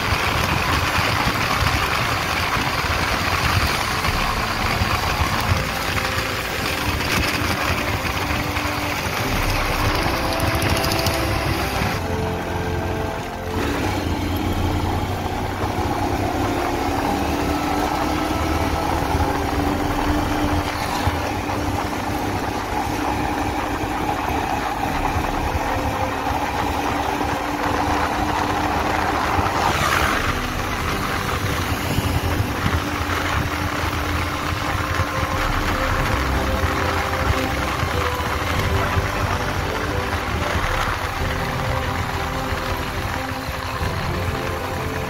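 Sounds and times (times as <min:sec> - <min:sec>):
motorcycle engine running: 0:00.0 - 0:45.0
wind rushing past microphone: 0:23.2 - 0:40.9.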